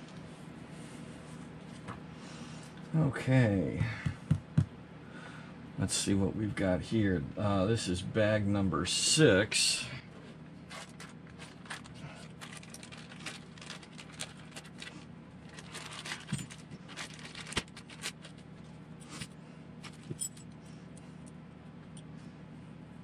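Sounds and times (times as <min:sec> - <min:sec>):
faint steady hum: 0:00.0 - 0:23.0
plastic parts clattering: 0:10.7 - 0:18.5
plastic bag crinkling: 0:10.7 - 0:18.7.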